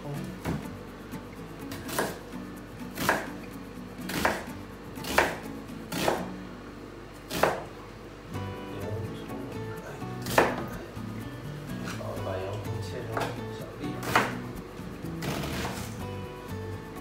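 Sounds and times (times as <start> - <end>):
background music: 0.0 - 17.0
knife chopping on cutting board: 1.7 - 2.2, 2.9 - 3.4, 4.1 - 6.3, 7.3 - 7.7, 10.2 - 10.8, 14.0 - 14.5, 15.2 - 15.9.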